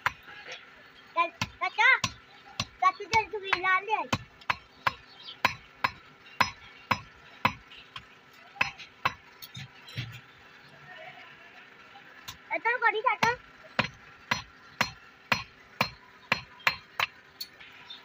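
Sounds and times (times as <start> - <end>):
hammer striking hot steel on anvil: 1.4 - 8.0, 8.6 - 9.7, 13.2 - 17.2.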